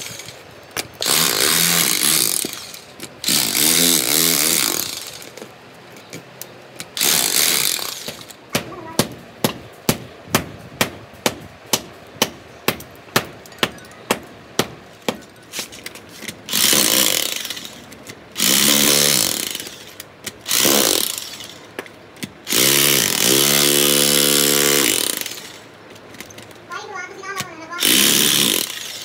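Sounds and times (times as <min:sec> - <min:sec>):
hammer striking concrete: 0:07.0 - 0:15.4.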